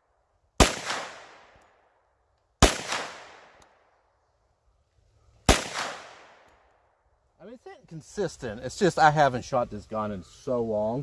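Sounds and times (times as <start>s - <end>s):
pistol shots with echo: 0.6s - 1.7s, 2.6s - 3.8s, 5.5s - 6.6s.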